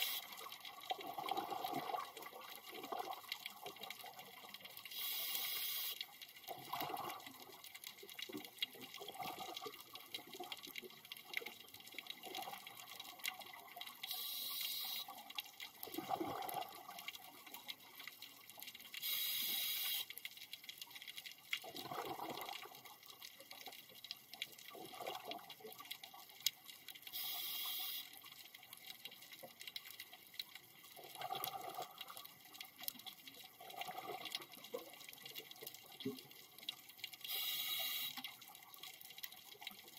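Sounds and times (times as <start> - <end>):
bubbles gurgling: 0.8 - 3.3, 6.5 - 7.6, 9.0 - 10.3, 15.8 - 17.1, 21.6 - 22.8, 24.7 - 25.4, 31.0 - 32.2, 33.6 - 34.7
regulator air hiss: 4.9 - 6.0, 14.1 - 15.1, 19.0 - 20.1, 27.2 - 28.1, 37.3 - 38.2.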